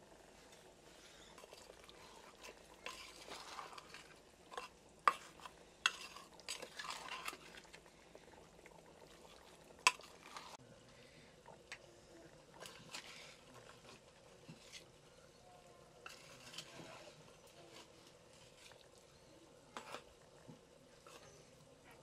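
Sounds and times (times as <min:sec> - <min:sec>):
wet squelching of chicken mixed: 0:00.4 - 0:10.6.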